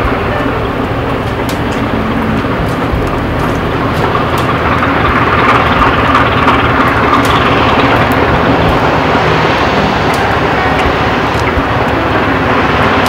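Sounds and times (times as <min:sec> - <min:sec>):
rushing noise: 0:00.0 - 0:13.0
slow-running diesel engine: 0:00.0 - 0:13.0.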